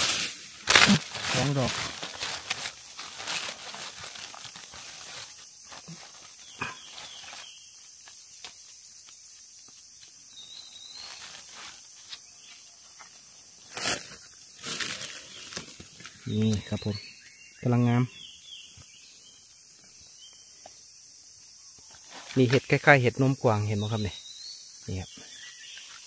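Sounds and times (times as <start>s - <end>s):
dry leaves rustling: 0.0s - 17.2s.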